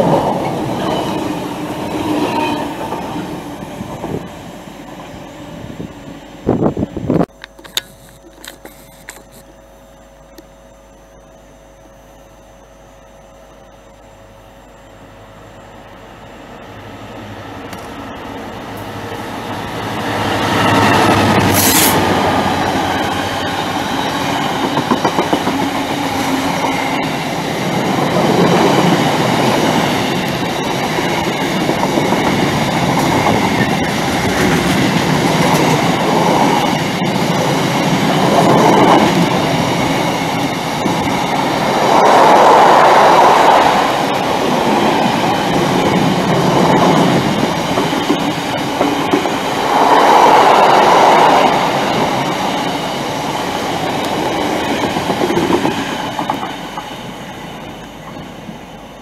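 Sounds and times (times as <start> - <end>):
train wheels clattering over track: 0.0 - 5.2, 17.6 - 58.7
diesel locomotive passing: 0.0 - 7.3, 13.9 - 59.0.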